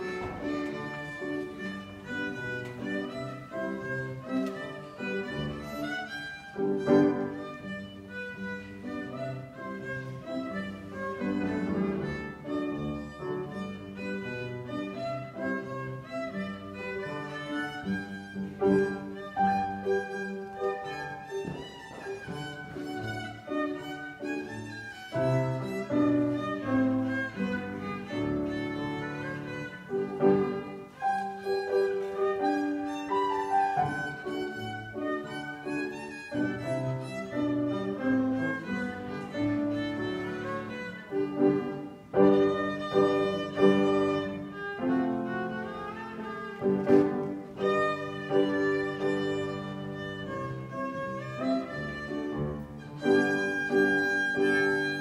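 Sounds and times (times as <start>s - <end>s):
piano accompaniment: 0.0s - 55.0s
violin melody: 0.0s - 55.0s.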